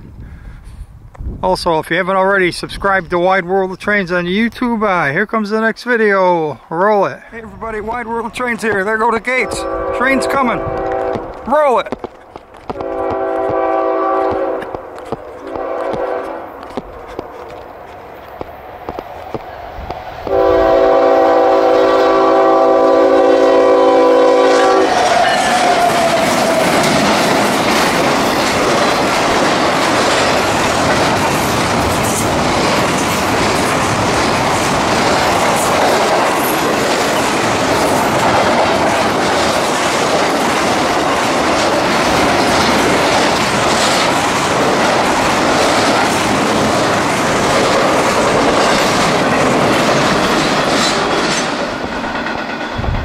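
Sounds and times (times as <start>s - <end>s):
train wheels on rails: 7.4s - 53.0s
locomotive air horn: 9.4s - 11.4s, 12.7s - 14.8s, 15.4s - 16.6s, 20.3s - 26.8s
wheels clicking over rail joints: 10.7s - 20.4s, 24.8s - 52.9s.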